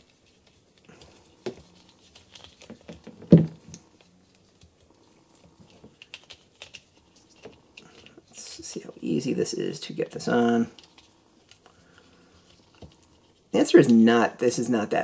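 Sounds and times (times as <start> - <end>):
plastic parts clicking and rattling: 0.0 - 8.3.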